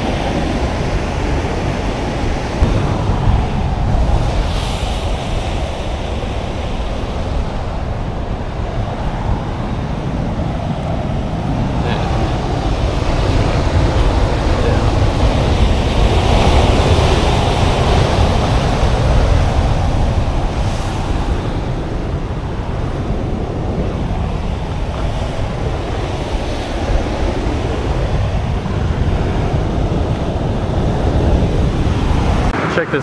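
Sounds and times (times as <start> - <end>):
surf breaking on rocks: 0.0 - 33.0
wind buffeting microphone: 0.0 - 33.0.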